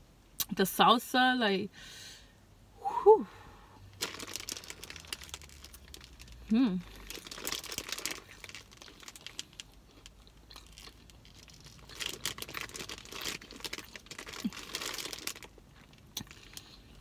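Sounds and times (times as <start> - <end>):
chip bag crinkling: 4.0 - 16.8.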